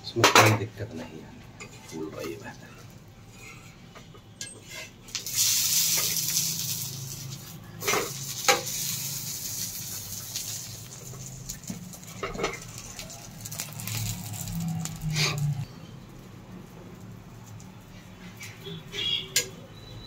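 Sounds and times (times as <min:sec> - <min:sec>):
oil sizzling on a hot pan: 0:05.0 - 0:18.9.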